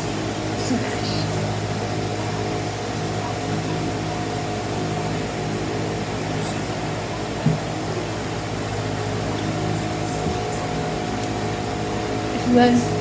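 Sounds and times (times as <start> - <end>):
faint whine: 0.0 - 13.0.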